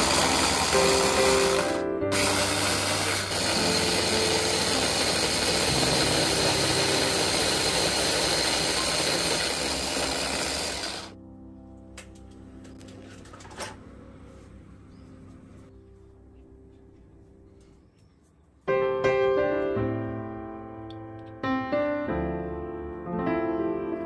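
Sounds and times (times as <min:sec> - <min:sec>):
electric food chopper whirring: 0:00.0 - 0:11.2.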